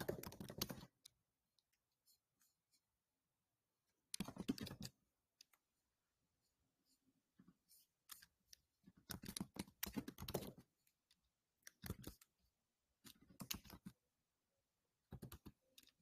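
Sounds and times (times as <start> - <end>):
keyboard typing: 0.0 - 1.8, 4.0 - 5.7, 8.0 - 14.1, 15.0 - 16.0.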